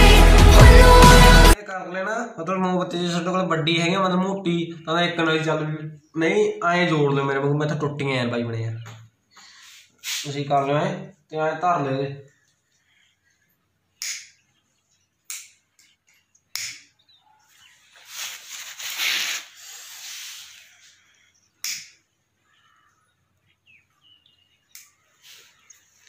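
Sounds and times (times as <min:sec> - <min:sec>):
hissing rustling noise: 0:09.6 - 0:10.4, 0:17.9 - 0:20.9.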